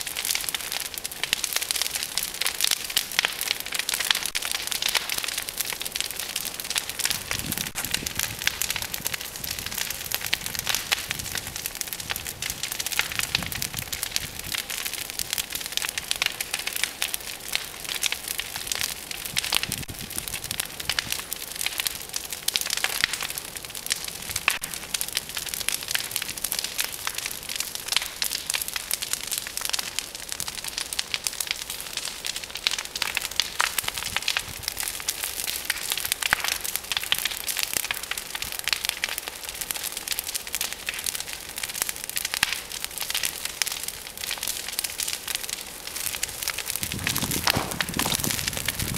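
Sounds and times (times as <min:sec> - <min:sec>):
brush pile fire crackling: 0:00.0 - 0:48.9
hiss of flames: 0:41.8 - 0:48.9.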